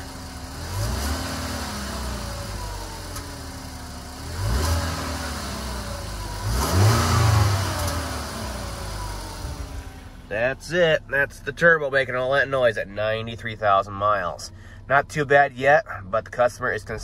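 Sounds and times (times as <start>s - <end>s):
car engine revving: 0.0s - 11.2s.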